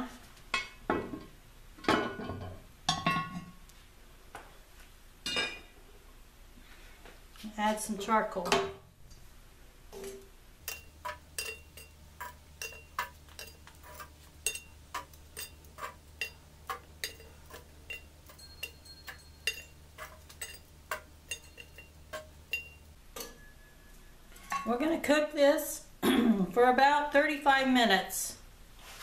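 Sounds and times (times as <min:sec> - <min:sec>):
tongs clinking charcoal on iron lid: 0:10.1 - 0:23.7.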